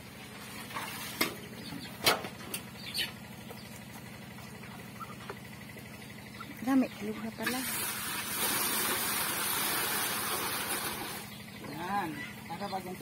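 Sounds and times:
steady low hum: 0.0 - 9.2.

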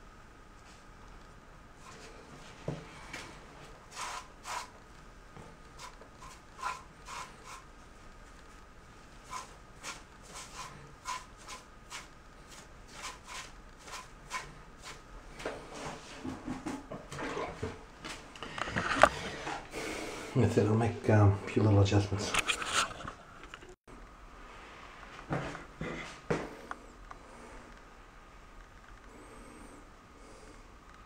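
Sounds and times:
sponge rubbing on tile: 3.9 - 4.7, 5.8 - 7.6, 9.2 - 15.0.

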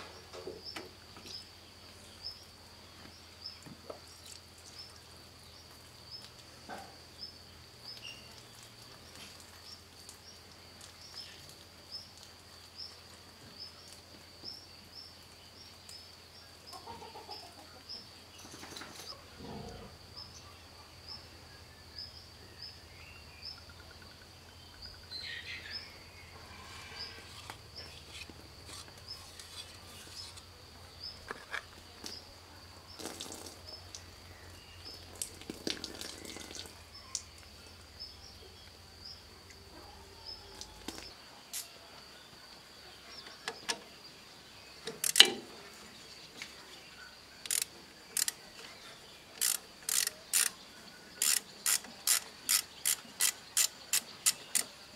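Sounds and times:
socket ratchet clicking: 44.9 - 45.3, 47.5 - 48.4, 49.4 - 50.6, 51.2 - 54.7
metal parts clicking: 44.9 - 45.4, 47.5 - 48.4, 49.4 - 50.6, 51.2 - 54.7.

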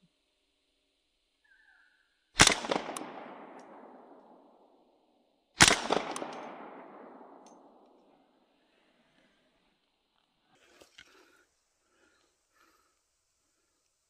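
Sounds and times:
echoing gunshots: 2.4 - 4.8, 5.6 - 8.4.

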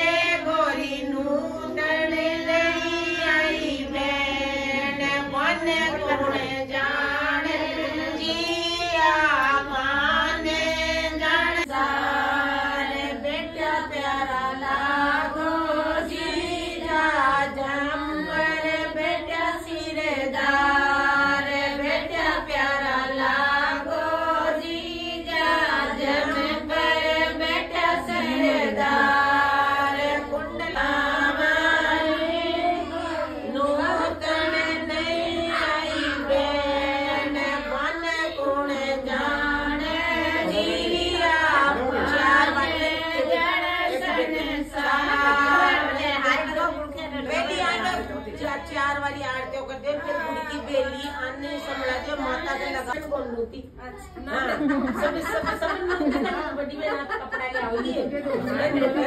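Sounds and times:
women singing folk song: 0.0 - 53.0.

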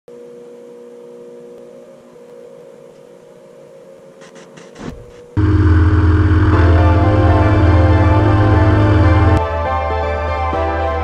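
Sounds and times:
door motor humming: 4.8 - 9.4
loud music: 5.4 - 11.0.

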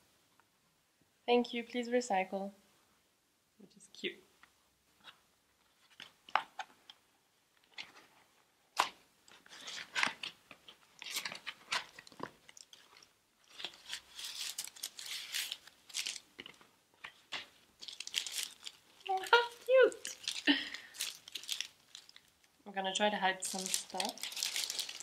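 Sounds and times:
paper and cardboard crinkling: 7.6 - 22.5, 23.2 - 25.0.

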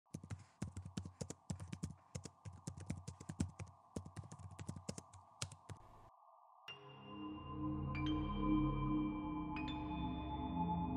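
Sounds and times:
keyboard typing: 0.1 - 6.1.

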